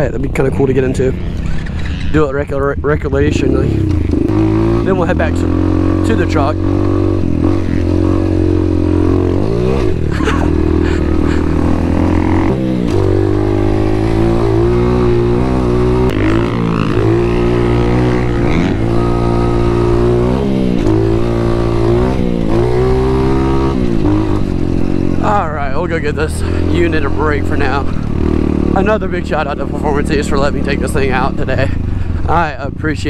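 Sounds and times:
dirt bike engine revving: 0.0 - 33.0.

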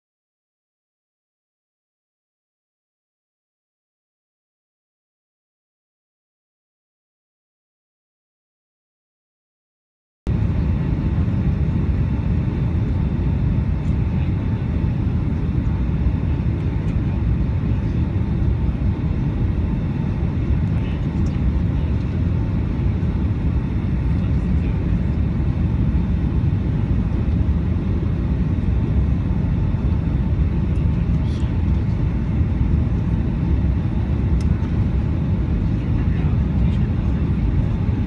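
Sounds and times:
aircraft engine rumble in cabin: 10.3 - 38.0.

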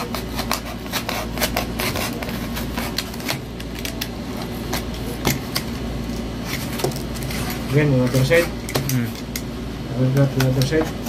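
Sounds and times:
knife cutting cardboard: 0.0 - 3.6.

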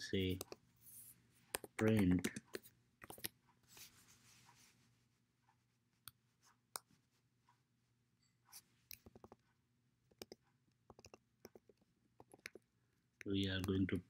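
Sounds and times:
mouse clicks: 1.5 - 3.4, 10.1 - 12.6.

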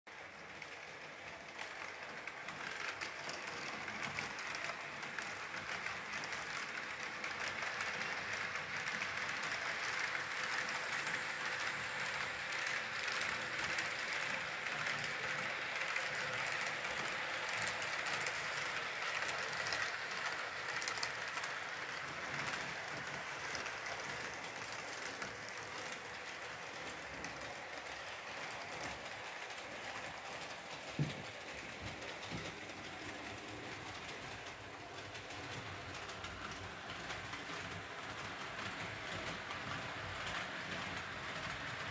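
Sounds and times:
model train wheels rolling on rails: 0.1 - 41.9.

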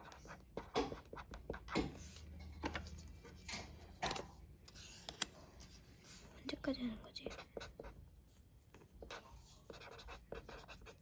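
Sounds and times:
marker scratching on paper: 0.0 - 3.5, 7.2 - 8.0, 8.7 - 11.0.

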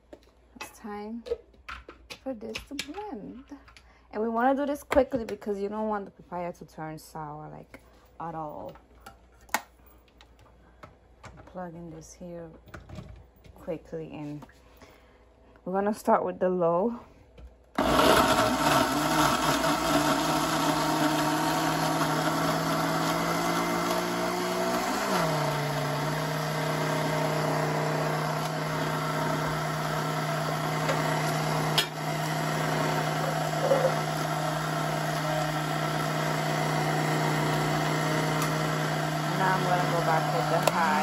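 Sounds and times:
blender motor hum: 17.8 - 41.0.

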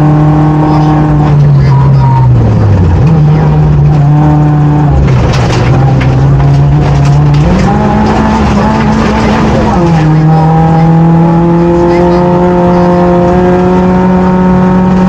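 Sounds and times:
car engine running hard: 0.0 - 15.0
gravel crackling under car: 1.2 - 10.9.

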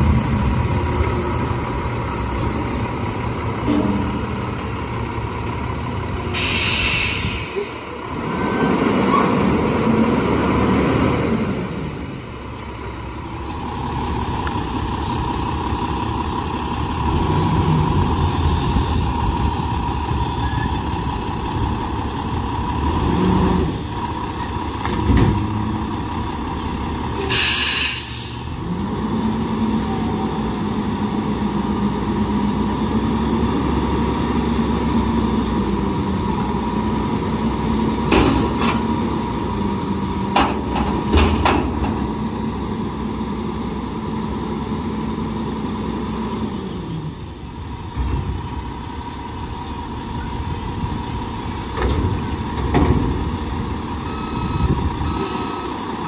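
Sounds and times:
engine and hydraulics humming: 0.0 - 56.0
air hissing: 6.2 - 7.8, 27.2 - 28.5.

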